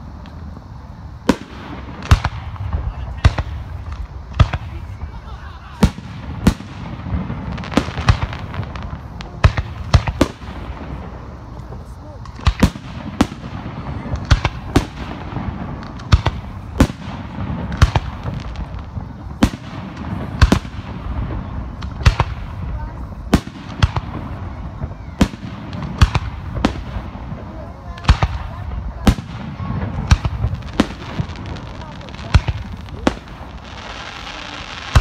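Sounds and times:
continuous low rumble: 0.0s - 35.0s
fireworks bursting in sharp bangs: 0.0s - 35.0s.

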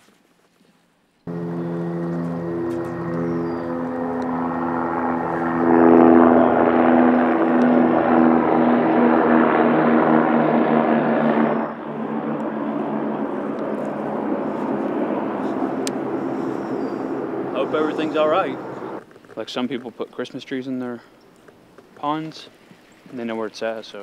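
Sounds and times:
engine drone: 1.3s - 19.0s
quiet steady rush: 1.3s - 24.0s.

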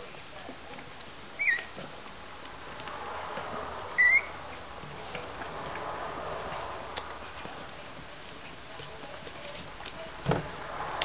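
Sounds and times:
puppy squeaking: 1.4s - 1.8s, 4.0s - 4.3s.

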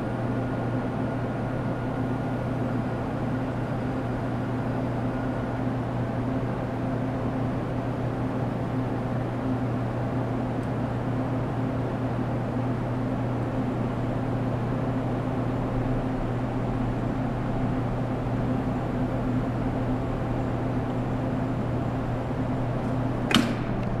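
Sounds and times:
industrial machine hum: 0.0s - 24.0s
sharp click: 23.2s - 24.0s.

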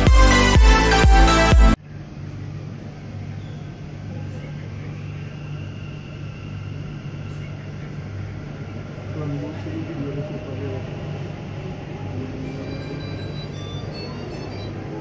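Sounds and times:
electronic intro music: 0.0s - 1.8s
faint whine: 1.8s - 15.0s
train hum and rumble: 1.8s - 15.0s.

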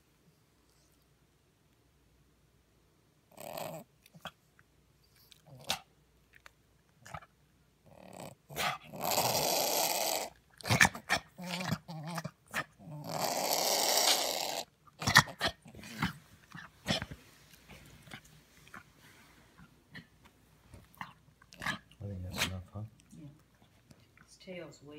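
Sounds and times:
dog snorting and snuffling: 7.9s - 23.0s.

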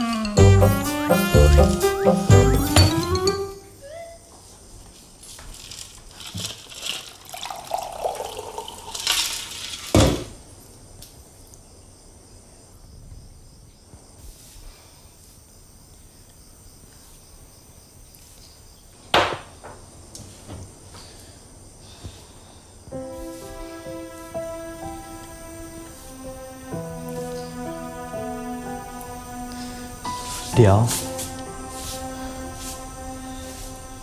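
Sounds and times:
water pouring into a glass: 6.8s - 9.9s.

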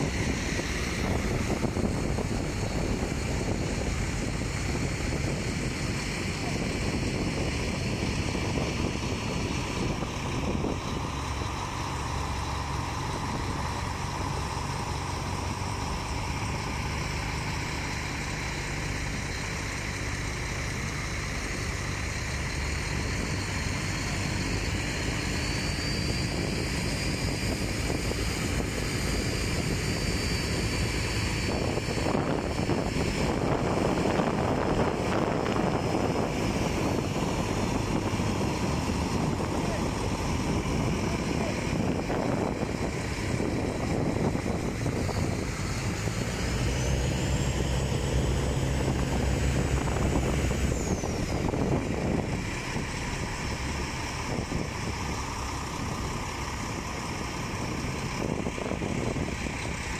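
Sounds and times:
boat engine running: 0.0s - 59.9s.

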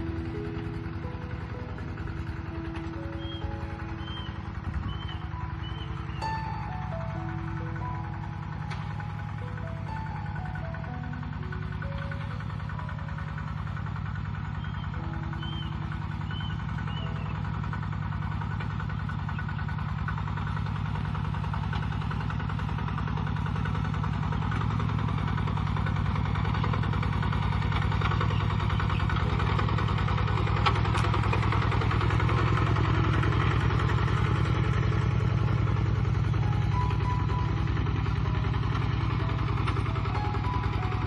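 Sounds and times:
diesel tractor engine running: 0.0s - 41.0s.

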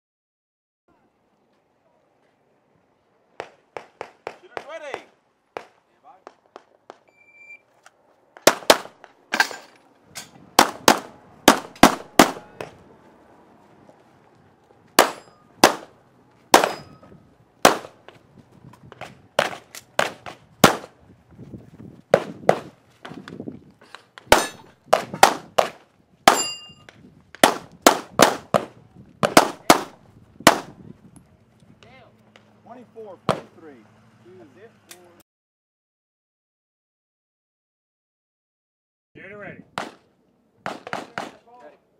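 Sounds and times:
handgun shots: 15.0s - 15.9s, 16.5s - 17.0s, 24.3s - 26.6s, 40.6s - 41.4s.

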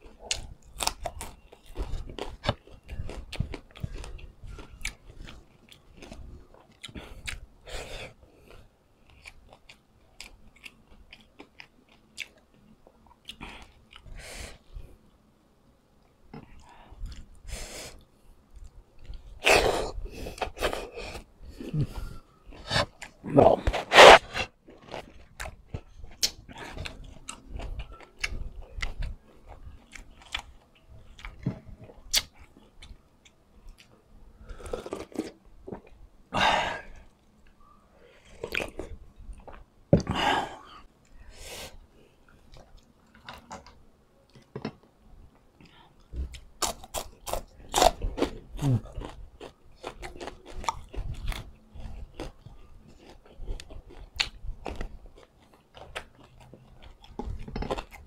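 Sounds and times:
chewing and lip-smacking: 0.0s - 7.5s, 9.0s - 14.2s, 24.7s - 34.0s, 42.3s - 44.4s, 45.6s - 58.0s.

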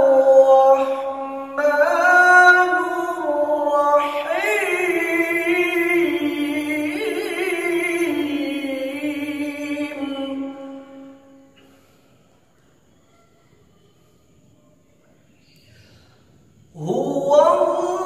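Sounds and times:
man chanting melodically: 0.0s - 11.2s, 16.7s - 18.0s.

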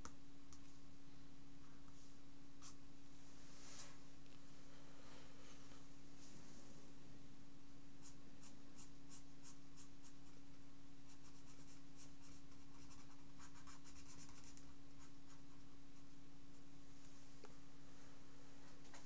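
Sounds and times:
steady low hum: 0.0s - 19.0s
marker scratching on paper: 11.1s - 15.6s.

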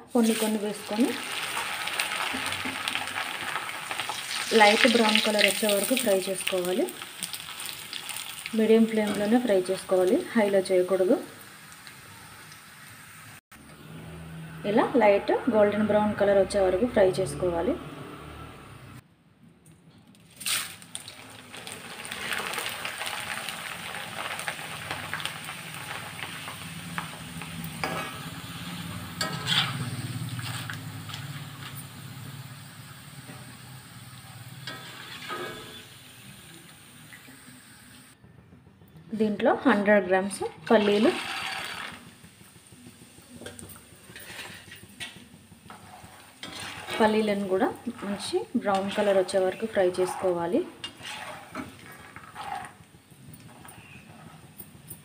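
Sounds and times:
food sizzling in hot oil: 0.0s - 13.4s, 20.4s - 38.2s, 40.6s - 55.0s
frying clicks and pops: 0.8s - 10.3s, 11.6s - 13.0s, 20.1s - 32.4s, 41.0s - 50.0s, 50.6s - 55.0s
metal spoon scraping a pan: 27.7s - 31.9s, 34.6s - 35.9s, 40.7s - 42.0s, 43.4s - 55.0s.

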